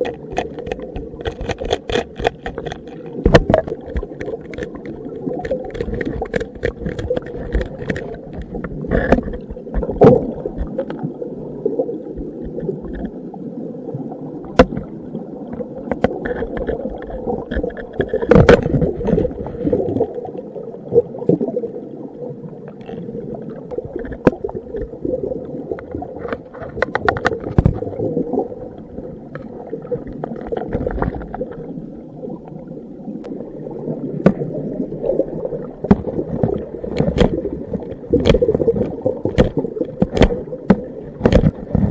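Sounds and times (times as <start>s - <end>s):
metal tool scraping rock underwater: 0.0s - 10.2s, 16.0s - 19.4s
muffled water rumble: 0.0s - 41.9s.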